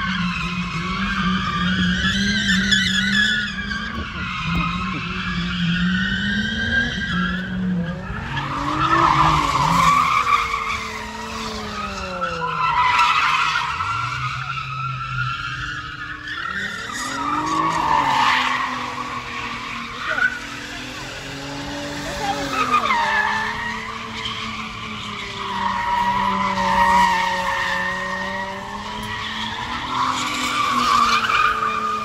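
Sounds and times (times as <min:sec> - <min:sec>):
tires screeching: 0:00.0 - 0:32.0
car engine revving high: 0:16.4 - 0:32.0.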